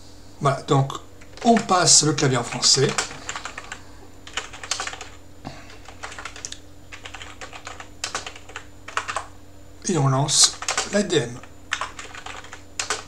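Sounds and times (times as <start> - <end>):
typing on a computer keyboard: 2.8 - 5.2, 5.8 - 9.3, 10.5 - 11.0, 11.7 - 13.0.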